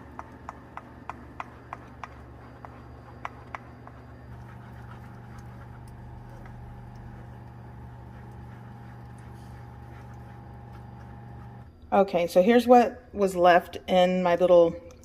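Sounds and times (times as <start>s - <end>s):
steady low hum: 0.0s - 14.2s.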